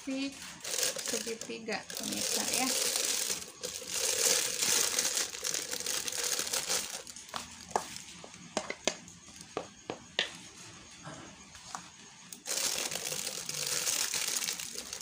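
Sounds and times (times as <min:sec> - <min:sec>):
plastic piping bag crinkling: 0:00.2 - 0:08.0, 0:12.4 - 0:15.0.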